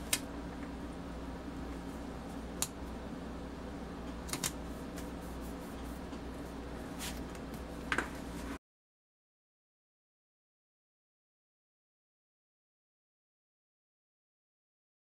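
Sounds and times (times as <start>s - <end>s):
steady low hum: 0.0s - 8.6s
paper stickers clicking and tapping: 4.3s - 5.1s.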